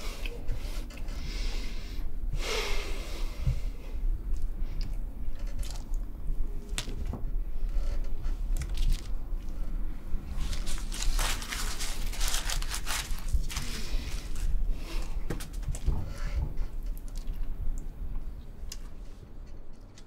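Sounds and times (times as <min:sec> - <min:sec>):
steady low hum: 0:00.0 - 0:20.0
aluminium foil crinkling: 0:08.5 - 0:09.2, 0:10.3 - 0:15.9.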